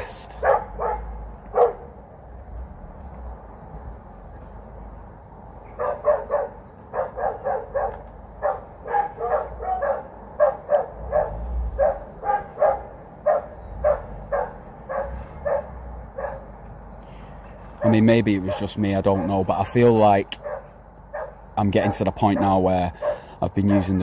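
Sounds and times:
dog barking: 0.4 - 1.9, 5.7 - 16.5, 17.8 - 19.5, 20.4 - 24.0.

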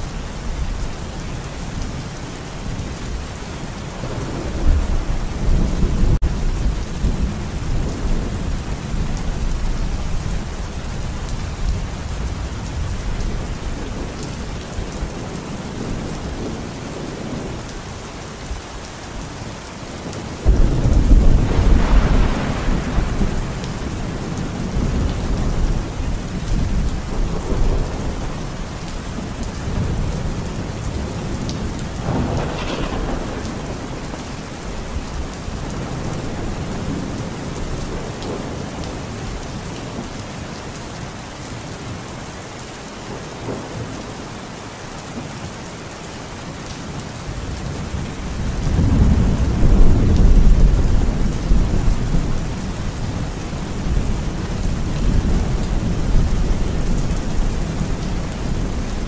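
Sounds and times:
heavy rain falling: 0.0 - 59.0
thunder clap and rumble: 4.0 - 17.9, 20.0 - 39.4, 47.4 - 59.0.

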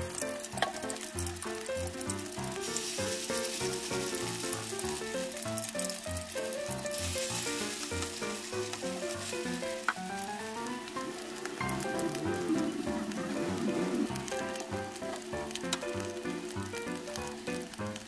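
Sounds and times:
oil sizzling in a frying pan: 0.0 - 18.0
background music with bass line: 11.6 - 17.4.

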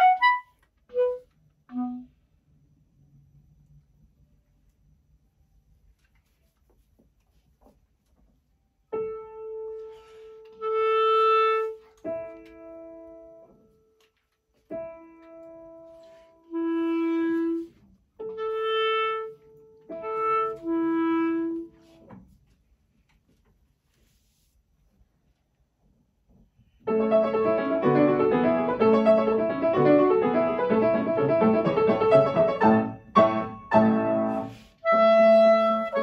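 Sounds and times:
piano notes: 0.0 - 2.0, 9.0 - 14.0, 14.6 - 22.1, 26.8 - 36.0
clarinet held notes: 0.0 - 2.2, 16.1 - 21.7, 33.8 - 36.0.

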